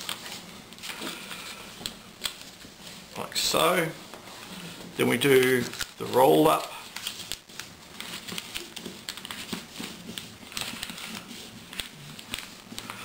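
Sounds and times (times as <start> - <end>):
paper rustling: 0.0 - 13.0
paper clicks and taps: 6.9 - 13.0.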